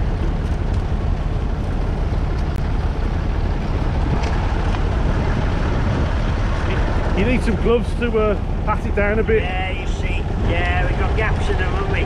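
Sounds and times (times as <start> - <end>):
tractor diesel engine under load: 0.0 - 12.0.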